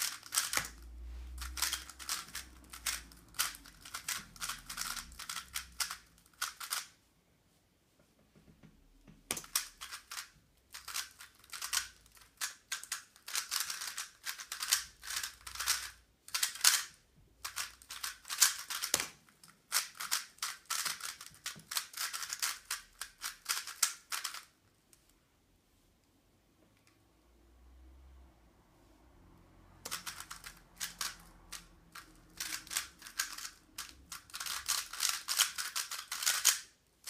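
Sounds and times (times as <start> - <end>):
puzzle cube plastic clicking: 0.0 - 0.8, 1.5 - 6.9, 9.3 - 24.5, 29.9 - 36.7.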